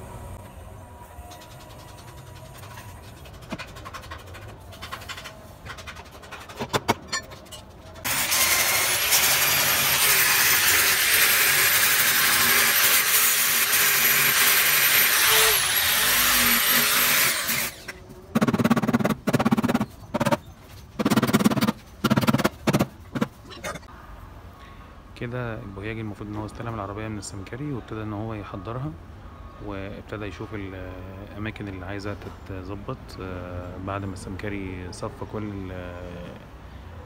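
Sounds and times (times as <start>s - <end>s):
angle grinder on steel: 8.0s - 20.4s.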